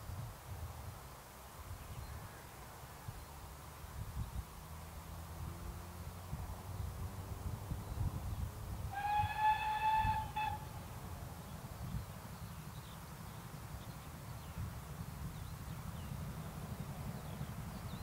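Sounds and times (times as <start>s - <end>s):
steam locomotive whistle: 8.9s - 10.7s.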